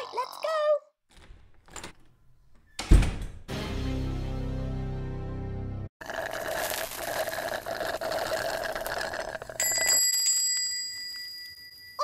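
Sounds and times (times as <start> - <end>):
bell ringing with lingering tone: 9.6 - 12.0.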